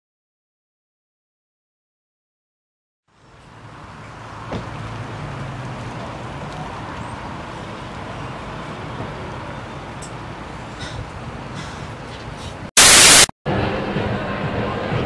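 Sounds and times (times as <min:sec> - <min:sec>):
bus diesel engine running: 0:03.1 - 0:12.7
traffic noise: 0:03.1 - 0:15.0.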